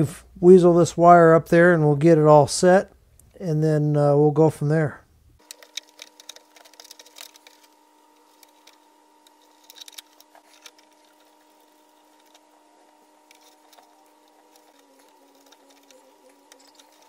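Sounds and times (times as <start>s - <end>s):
faint steady hum: 0.0s - 17.0s
clicks and rustles of wires: 5.4s - 17.0s.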